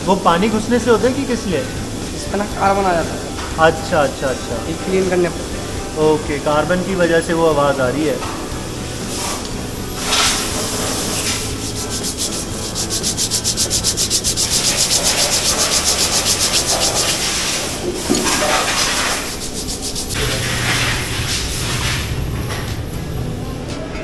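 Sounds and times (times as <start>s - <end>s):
brake pads being scrubbed: 9.2s - 22.3s.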